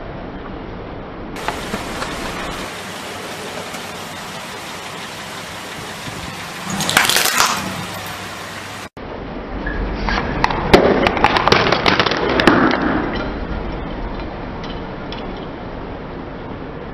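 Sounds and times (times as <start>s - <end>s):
steady noisy hiss: 0.0s - 16.9s
tyre crushing cans and boxes: 6.7s - 7.8s.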